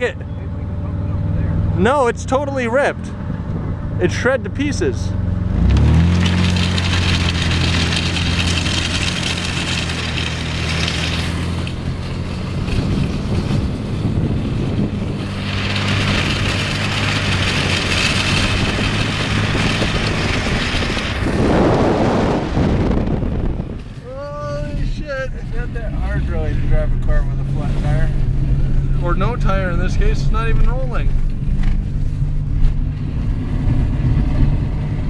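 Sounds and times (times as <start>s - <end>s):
van engine humming: 0.0s - 35.0s
shredded tyre scraping: 4.1s - 35.0s.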